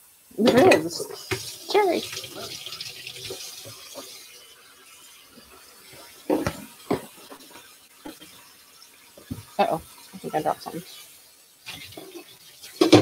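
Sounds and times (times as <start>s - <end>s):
running tap water: 0.0s - 13.0s
kitchenware clunks: 12.8s - 13.0s.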